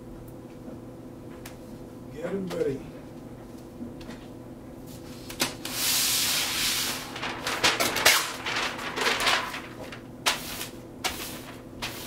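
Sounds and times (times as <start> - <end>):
paper sliding rustle: 4.9 - 12.0
paper crinkling and crackling: 5.2 - 10.7.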